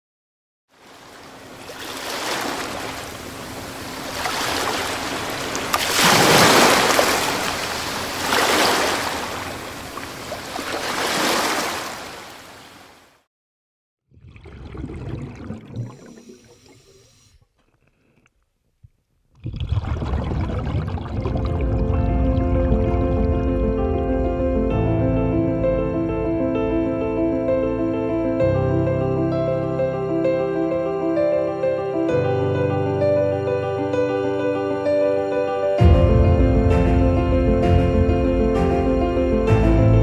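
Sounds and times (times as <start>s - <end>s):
waves rushing along a boat: 0.8s - 13.1s.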